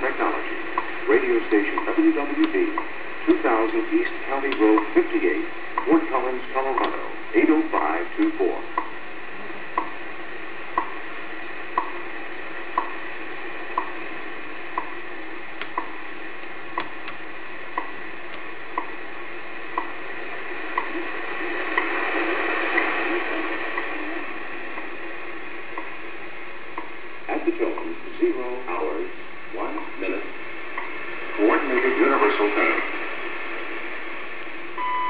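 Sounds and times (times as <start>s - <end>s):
radio static hiss: 0.0s - 35.0s
short time signal ticks: 1.7s - 2.9s, 3.7s - 5.0s, 5.8s - 6.0s, 6.6s - 7.0s, 7.7s - 8.9s, 9.8s - 10.0s, 10.8s - 11.0s, 11.8s - 12.0s, 12.8s - 13.0s, 13.7s - 14.0s, 14.7s - 15.0s, 15.6s - 19.0s, 19.7s - 20.0s.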